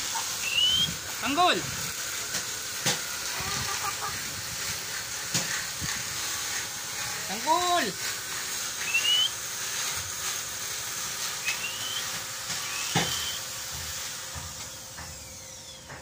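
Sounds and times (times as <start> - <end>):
steady hiss: 0.0 - 15.3
chick peeping: 3.3 - 4.2.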